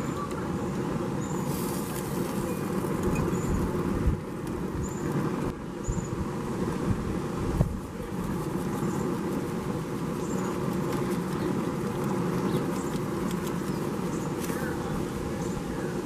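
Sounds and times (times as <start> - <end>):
broth boiling: 0.0 - 16.0.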